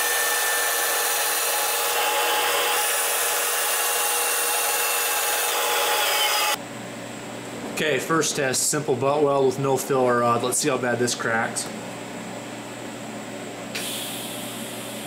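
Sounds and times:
bandsaw whine: 0:00.0 - 0:06.6.

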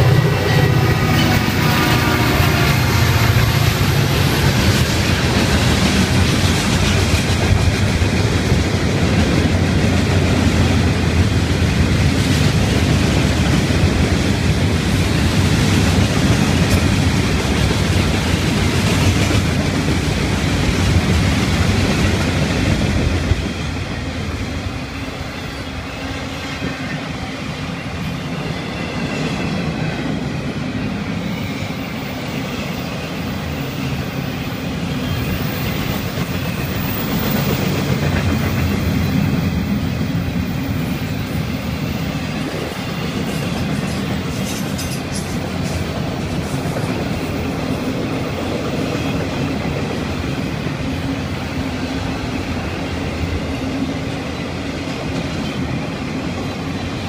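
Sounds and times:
freight train wheels rumbling: 0:00.0 - 0:57.0
clickety-clack over rail joints: 0:02.5 - 0:24.0, 0:35.0 - 0:51.4.

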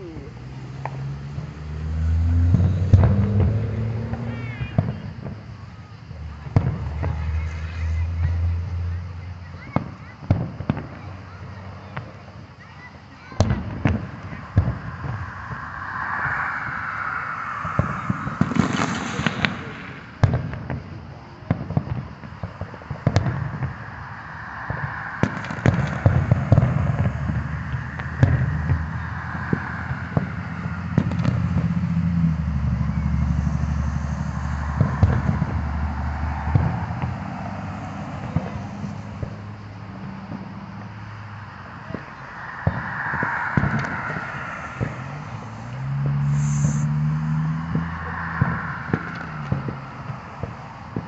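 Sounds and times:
fireworks bursting: 0:00.3 - 0:08.5, 0:09.5 - 0:51.0
low rumble: 0:13.4 - 0:20.3, 0:22.7 - 0:39.4, 0:41.5 - 0:51.0.

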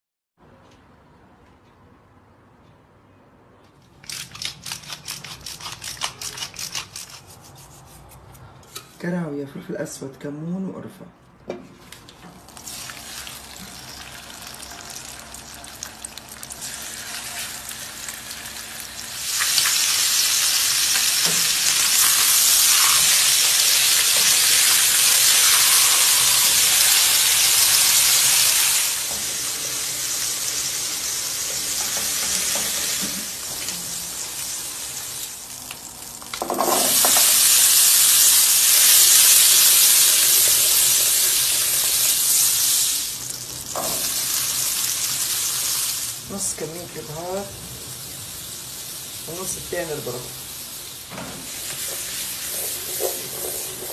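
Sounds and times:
food sizzling in a pan: 0:12.5 - 0:53.9.

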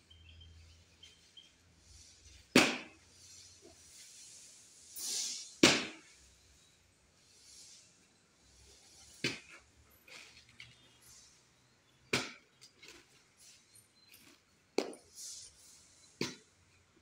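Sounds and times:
axe chopping into wood: 0:02.5 - 0:03.0, 0:05.6 - 0:06.0, 0:12.1 - 0:12.4.

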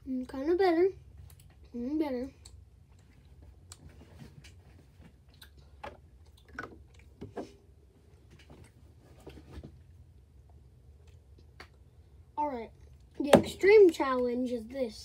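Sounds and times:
low steady hum: 0:00.0 - 0:15.0
person chewing candy: 0:05.2 - 0:07.2.

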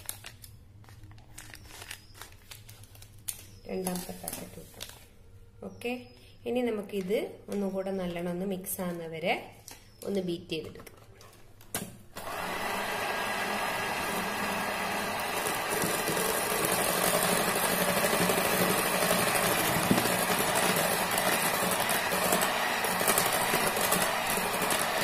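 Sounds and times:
electric hand mixer running: 0:12.2 - 0:25.0.

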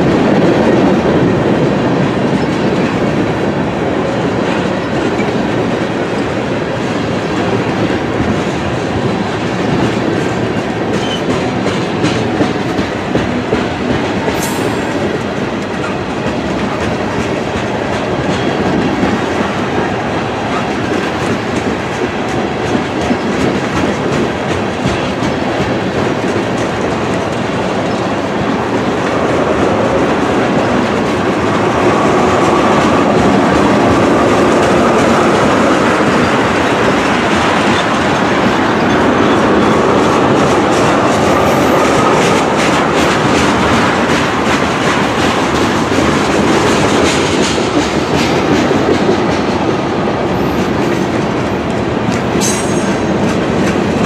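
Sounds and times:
train rumbling past: 0:00.0 - 0:54.0.

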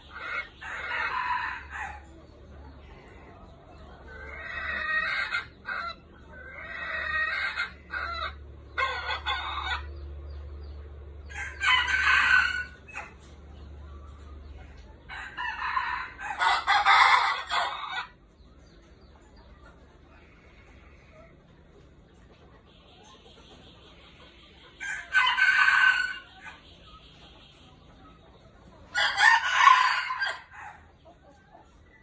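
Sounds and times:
roosters crowing: 0:00.0 - 0:10.1, 0:11.2 - 0:13.4, 0:14.7 - 0:18.2, 0:24.8 - 0:26.7, 0:28.9 - 0:31.0.

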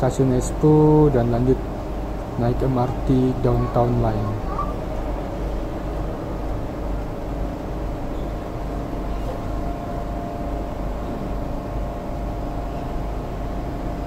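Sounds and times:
train car rumble and hum: 0:00.0 - 0:14.0.

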